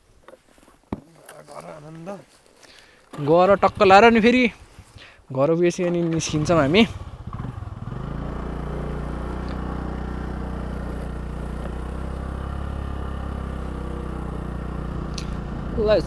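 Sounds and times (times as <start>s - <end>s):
scooter engine running: 6.0s - 16.0s.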